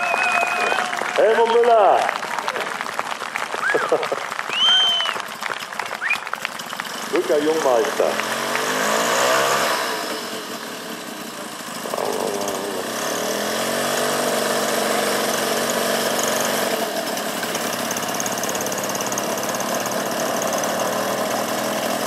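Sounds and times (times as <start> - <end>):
model plane engine running: 9.8 - 22.0.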